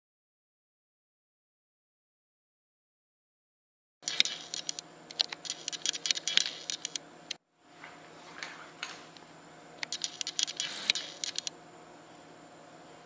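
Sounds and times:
faint hum: 4.0 - 13.0.

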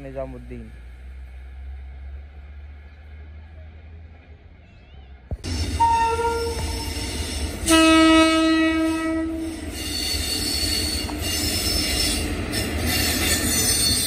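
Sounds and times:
train wheels rumbling on track: 0.0 - 14.0
train horn blast: 5.8 - 7.0, 7.6 - 12.2.

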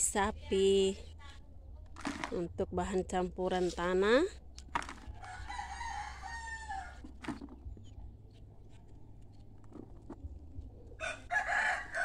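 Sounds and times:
knock on plastic bucket: 4.7 - 5.1, 7.0 - 7.7.

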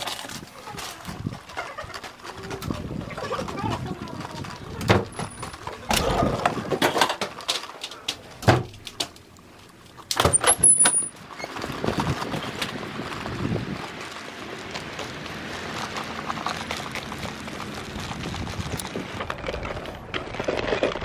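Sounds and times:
door squeak: 10.2 - 11.6.

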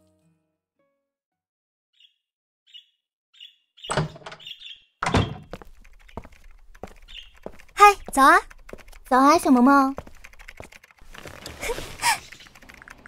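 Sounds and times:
faint bird chirps: 2.0 - 4.9, 6.9 - 8.0
door opening and shutting: 3.9 - 5.6.

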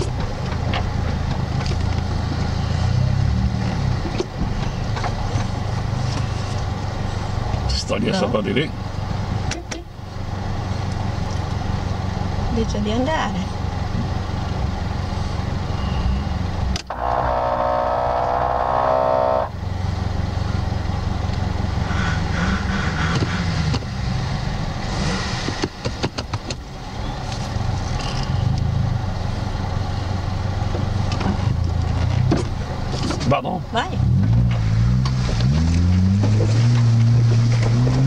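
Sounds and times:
off-road engine droning: 0.0 - 38.0
held level tone: 16.9 - 19.5.

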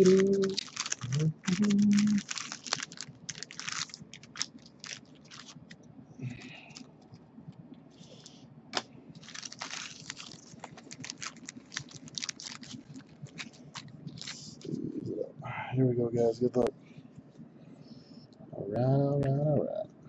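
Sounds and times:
plastic sleeves crinkling: 0.0 - 7.2, 8.0 - 15.0.

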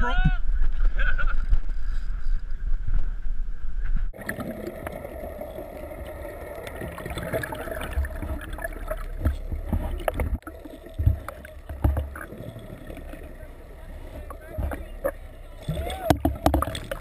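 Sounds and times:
low boat rumble: 0.0 - 17.0
wind: 0.0 - 17.0
muffled underwater rush: 0.4 - 17.0
underwater clicks: 5.8 - 17.0.

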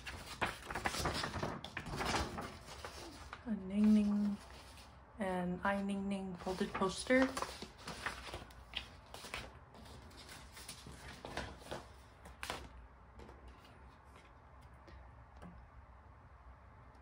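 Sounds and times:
paper crinkling: 0.0 - 4.9, 6.4 - 14.3.

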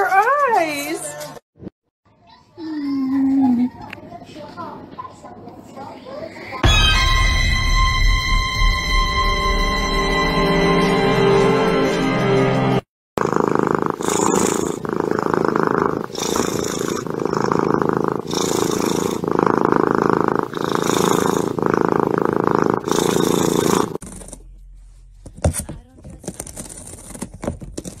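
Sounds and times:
cat purring: 13.2 - 24.6.

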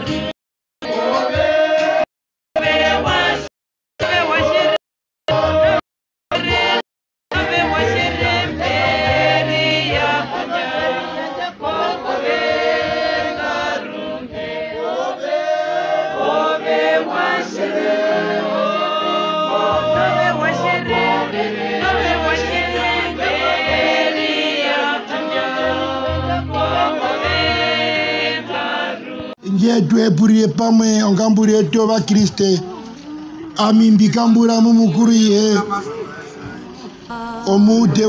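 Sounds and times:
group singing a hymn: 0.0 - 29.5.

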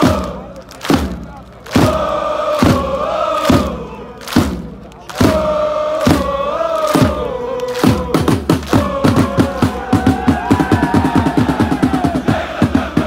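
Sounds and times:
heavy drum thuds: 0.0 - 3.8
crowd chanting in unison: 0.0 - 13.0.

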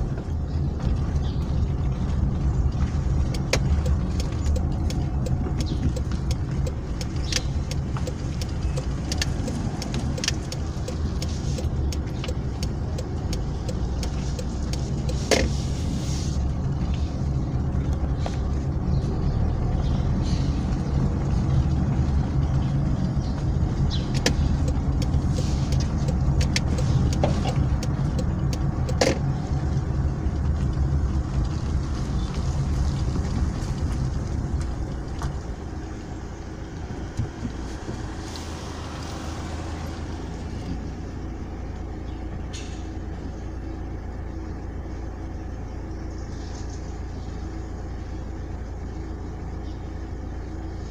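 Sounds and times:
car engine: 0.0 - 50.9
road noise: 0.0 - 50.9.

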